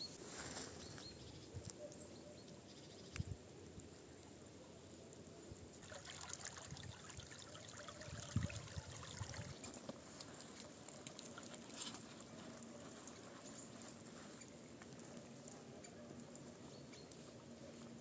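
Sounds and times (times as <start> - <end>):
stream trickling: 5.7 - 12.6.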